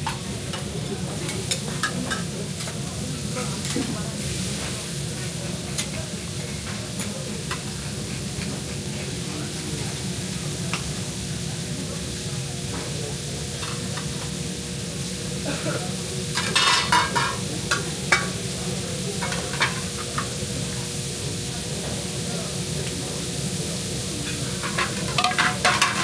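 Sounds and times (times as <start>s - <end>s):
food sizzling on griddle: 0.0s - 26.0s
metal utensils clicking: 24.6s - 26.0s.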